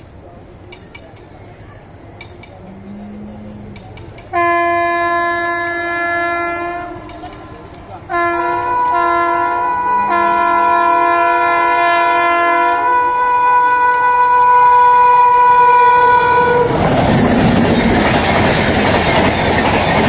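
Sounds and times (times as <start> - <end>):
train horn blasts: 4.3 - 16.8.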